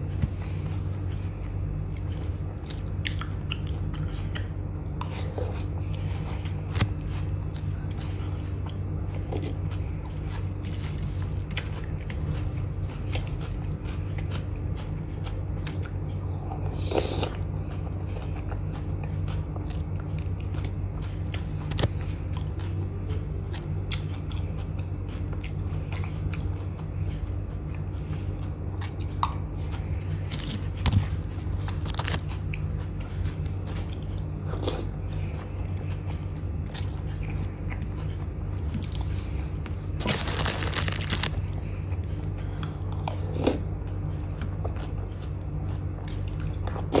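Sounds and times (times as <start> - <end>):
chewing crisp food: 0.0 - 47.0
steady low hum: 0.0 - 47.0
short crunches: 38.6 - 41.5.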